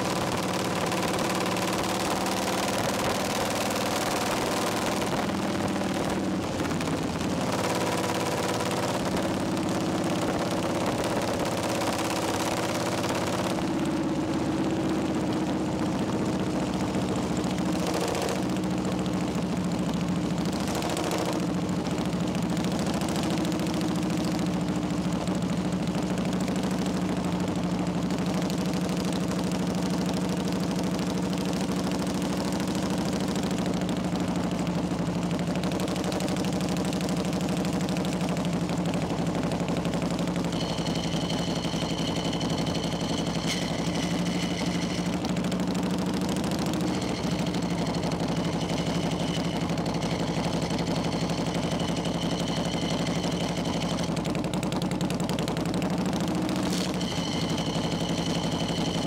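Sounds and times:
motorcycle engine exhaust beat: 0.0 - 59.0
thin high whine: 39.8 - 54.5, 56.2 - 59.0.

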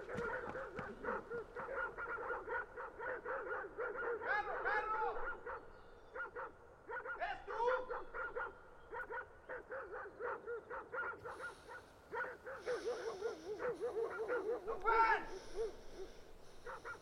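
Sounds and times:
short repeated animal calls: 11.0 - 17.0
faint hiss: 11.2 - 17.0.

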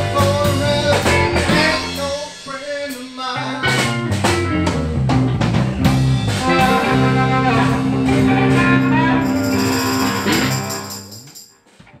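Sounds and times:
live blues band: 0.0 - 11.2
harmonica: 6.2 - 11.2.

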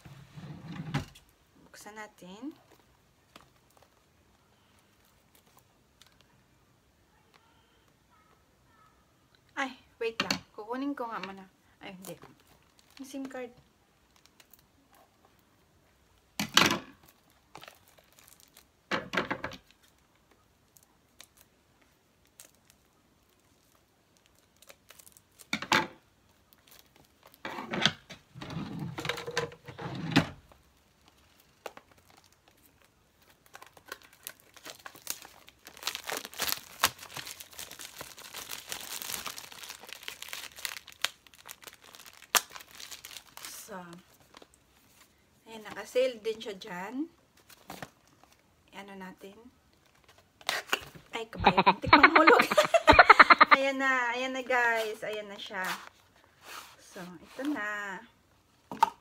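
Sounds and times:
plastic wrap crinkling and tearing: 12.0 - 15.2, 17.0 - 18.9, 19.6 - 27.5, 30.4 - 45.1.

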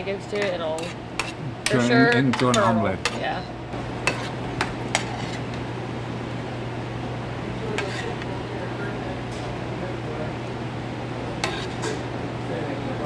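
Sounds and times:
spoon scraping sauce in pan: 4.0 - 5.5, 7.8 - 8.3, 11.4 - 11.9.

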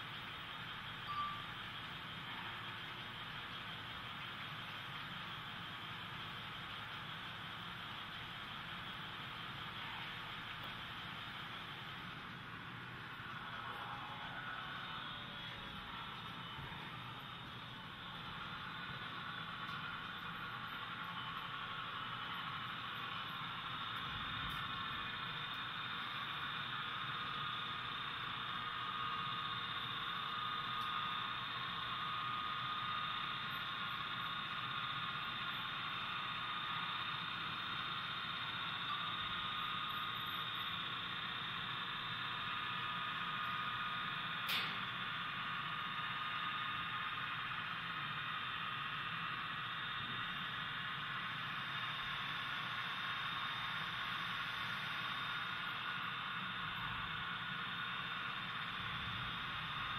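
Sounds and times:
faint high whine: 0.0 - 59.9
sharp click: 44.4 - 44.9.

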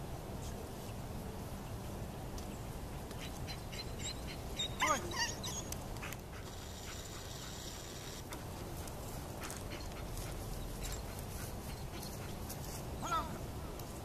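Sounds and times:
low outdoor background: 0.0 - 14.0
dog whining: 3.7 - 5.7.

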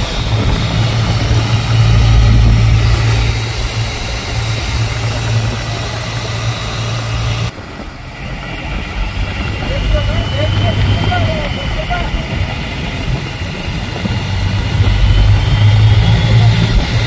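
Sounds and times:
boat engine running: 0.0 - 17.0
water rushing along hull: 0.0 - 17.0.

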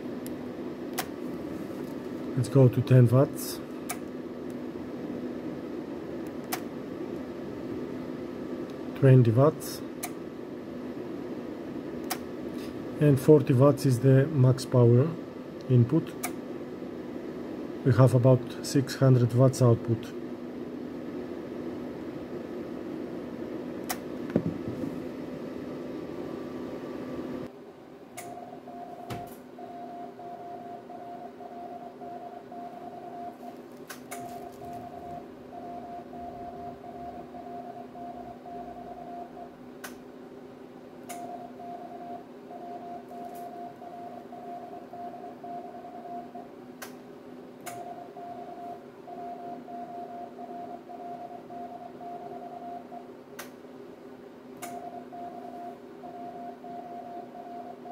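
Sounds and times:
cooling fan hum: 0.0 - 57.9
morse code tone: 28.3 - 33.6, 34.2 - 39.5, 41.2 - 46.5, 47.8 - 53.0, 54.7 - 57.9.

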